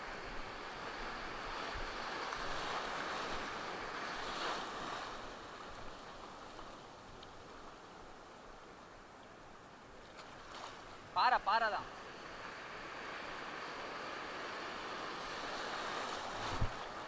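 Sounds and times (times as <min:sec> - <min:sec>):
sea surf breaking: 0:00.0 - 0:06.8, 0:10.3 - 0:17.0.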